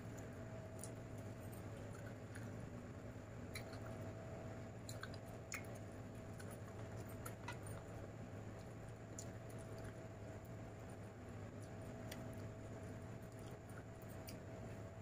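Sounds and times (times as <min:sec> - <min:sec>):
chewing: 0:00.0 - 0:02.8, 0:03.5 - 0:04.2, 0:04.8 - 0:14.9
steady low hum: 0:00.0 - 0:15.0.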